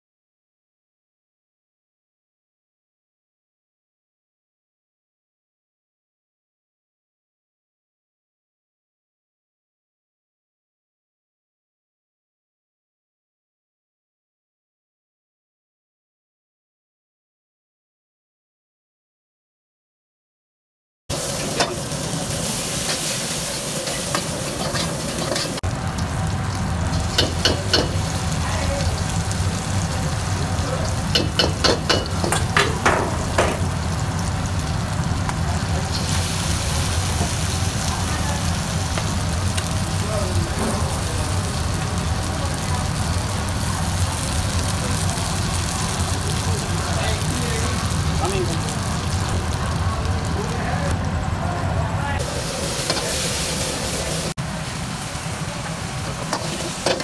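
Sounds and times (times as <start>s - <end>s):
liquid sizzling in hot wok: 21.1s - 51.4s, 52.2s - 57.0s
gas burner roaring: 21.1s - 57.0s
low kitchen rumble: 21.1s - 57.0s.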